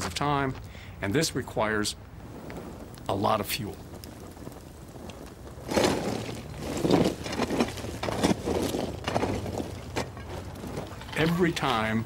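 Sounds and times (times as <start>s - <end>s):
lime lumps crunching and scraping: 2.3s - 12.0s.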